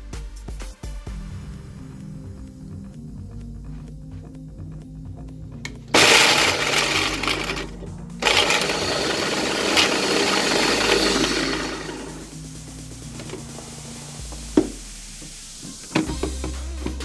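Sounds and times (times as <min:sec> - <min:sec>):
electric blender running: 0:05.9 - 0:12.4.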